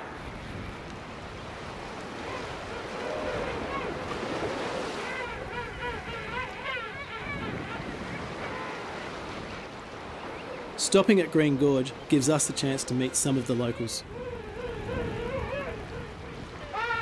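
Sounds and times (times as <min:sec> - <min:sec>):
surf: 0:00.0 - 0:17.0
wind: 0:00.0 - 0:17.0
penguins calling: 0:05.0 - 0:09.0, 0:12.2 - 0:17.0.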